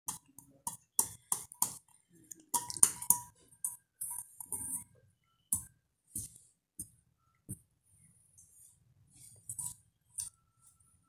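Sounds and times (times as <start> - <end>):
metal bowl clinking: 0.1 - 5.7.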